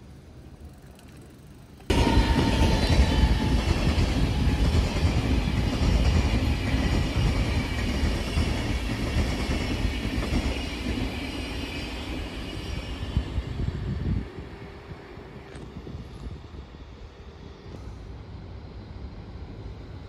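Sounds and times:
train wheels rumbling on rails: 0:00.9 - 0:20.0.

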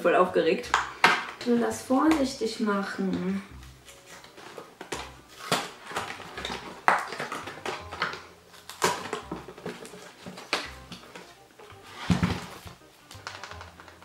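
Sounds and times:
cardboard rustling: 0:03.8 - 0:14.0.

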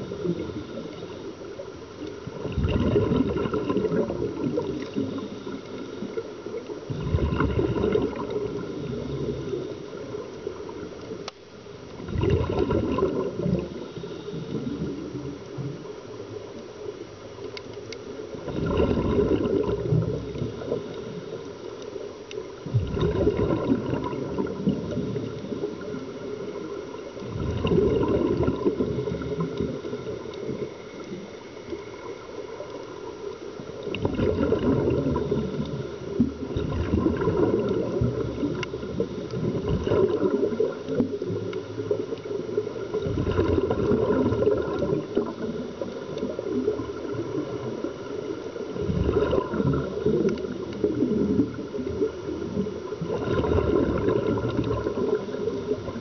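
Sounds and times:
underwater bubbling exhalations: 0:00.0 - 0:11.2, 0:11.9 - 0:16.5, 0:18.2 - 0:21.5, 0:22.5 - 0:32.8, 0:33.7 - 0:56.0
regulator hiss: 0:13.5 - 0:15.5.

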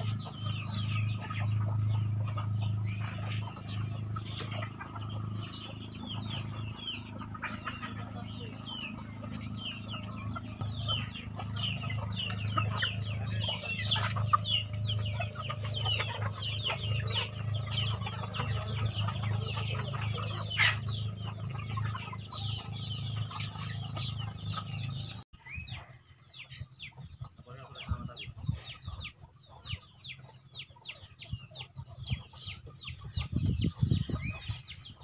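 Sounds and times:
steady low hum: 0:00.0 - 0:25.2
chickens clucking: 0:00.0 - 0:35.0.

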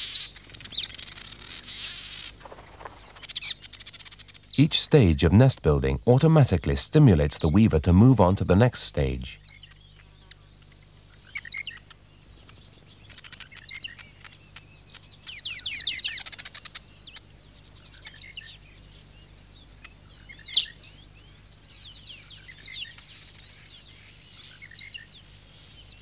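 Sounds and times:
weaver birds chattering: 0:00.0 - 0:05.0, 0:05.6 - 0:26.0
bird clicks: 0:13.1 - 0:15.4.

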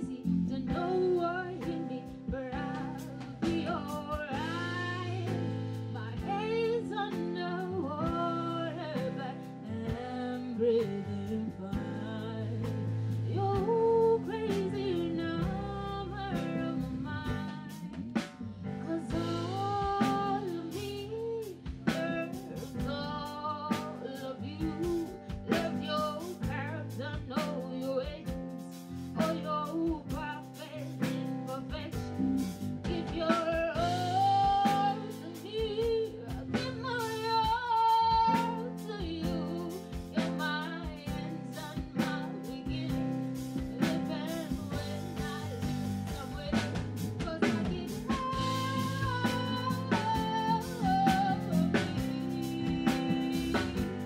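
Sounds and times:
woman singing with vibrato: 0:00.0 - 0:28.5, 0:29.1 - 0:54.0
bass: 0:00.0 - 0:54.0
drum kit steady beat: 0:00.0 - 0:54.0
keyboard: 0:00.0 - 0:54.0
guitar: 0:43.8 - 0:54.0.

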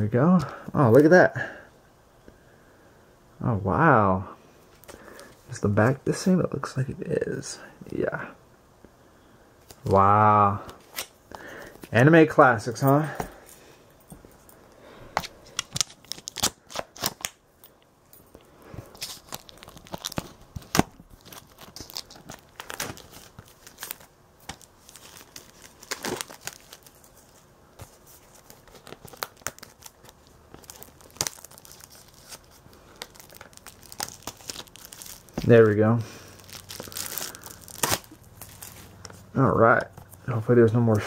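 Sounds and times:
plastic wrap crinkling and tearing: 0:15.5 - 0:17.4, 0:18.8 - 0:39.3.

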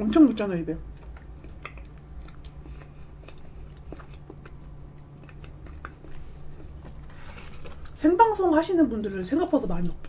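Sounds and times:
low steady hum: 0:00.0 - 0:10.0
wet chewing mouth sounds: 0:00.8 - 0:08.0.

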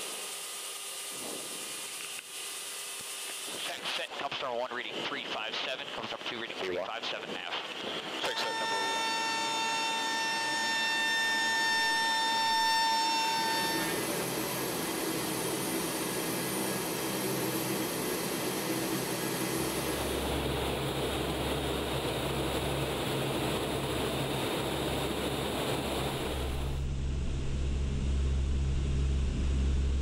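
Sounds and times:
turboprop engine drone: 0:00.0 - 0:30.0
deep rumble: 0:18.2 - 0:30.0.

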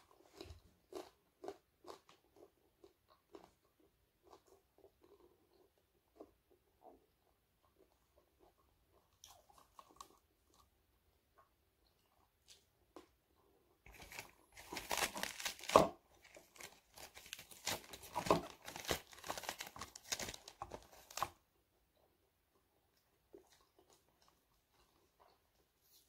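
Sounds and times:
cabbage leaves tearing: 0:13.9 - 0:21.3.

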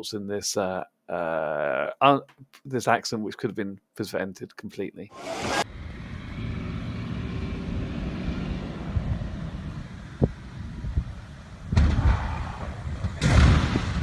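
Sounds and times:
plane crashing into ground: 0:05.2 - 0:14.0
wind rumble on microphone: 0:08.7 - 0:14.0.

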